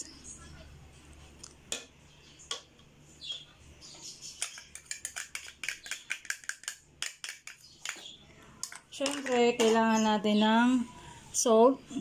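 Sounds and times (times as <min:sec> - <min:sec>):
utensil tapping on dish: 0:04.4 - 0:08.0.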